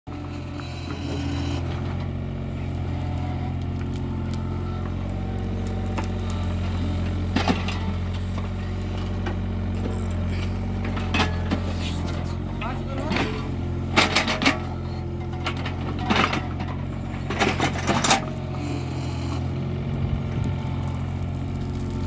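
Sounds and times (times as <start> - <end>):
excavator diesel engine running: 0.1 - 22.0
soil clattering into steel bed: 6.9 - 18.4.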